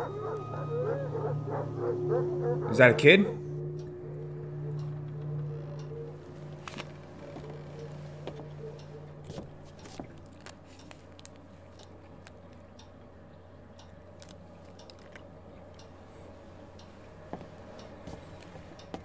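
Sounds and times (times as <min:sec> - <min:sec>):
faint low hum: 0:00.0 - 0:19.0
small clicks and ticks: 0:06.5 - 0:16.0.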